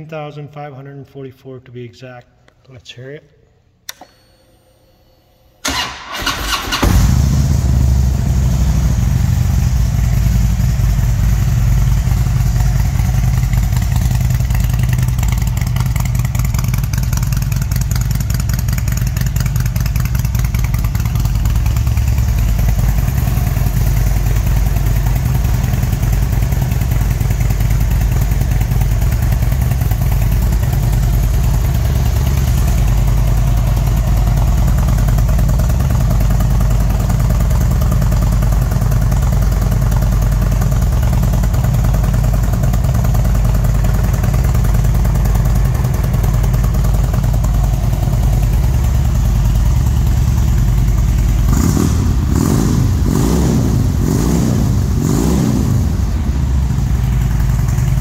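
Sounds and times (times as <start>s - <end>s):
motorcycle starter cranking: 5.6s - 7.3s
motorcycle engine idling: 5.6s - 58.0s.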